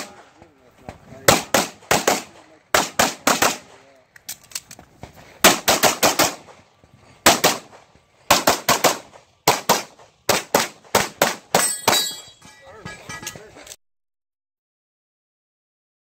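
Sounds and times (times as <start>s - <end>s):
pistol shots: 1.2s - 4.4s, 5.4s - 12.2s.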